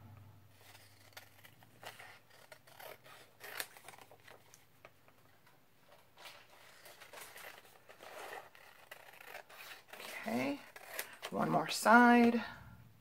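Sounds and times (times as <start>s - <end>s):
scissors snipping paper: 0.6s - 4.1s.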